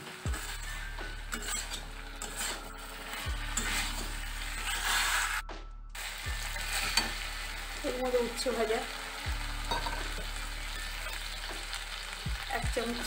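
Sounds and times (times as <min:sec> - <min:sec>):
oil sizzling: 0:00.0 - 0:05.4, 0:06.0 - 0:13.0
metal spatula scraping a pan: 0:00.3 - 0:05.4, 0:06.4 - 0:07.7.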